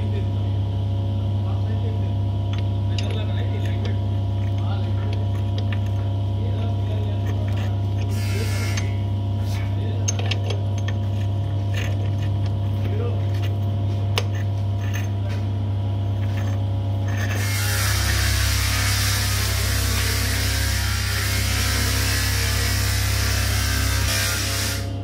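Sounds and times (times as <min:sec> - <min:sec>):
steady low hum: 0:00.0 - 0:25.0
metal gears clicking and clinking: 0:02.5 - 0:06.2, 0:07.1 - 0:09.0, 0:10.0 - 0:15.4, 0:16.1 - 0:21.7.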